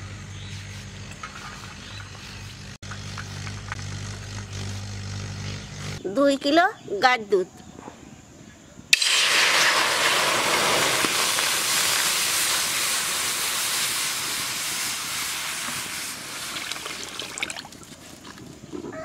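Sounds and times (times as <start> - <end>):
small drips: 16.5 - 18.4.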